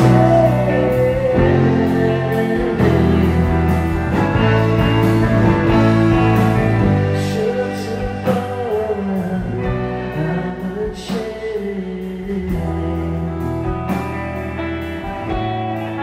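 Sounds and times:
wavering lead melody: 0.0 - 10.8
rock band playing live: 0.0 - 16.0.

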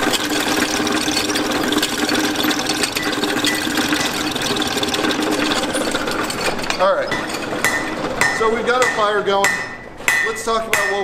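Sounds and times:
gears clattering: 0.0 - 8.2
hand-cranked forge blower whirring: 0.0 - 11.0.

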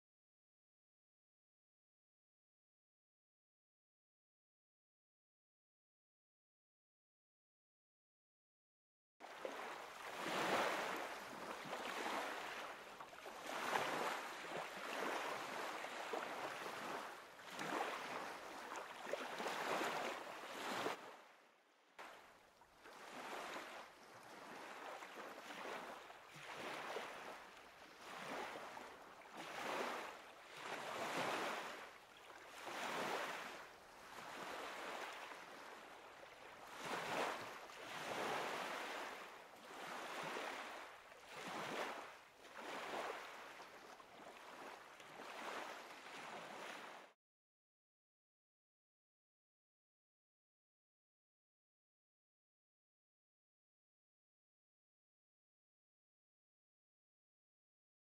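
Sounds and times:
waves lapping against boat hull: 9.2 - 47.2.

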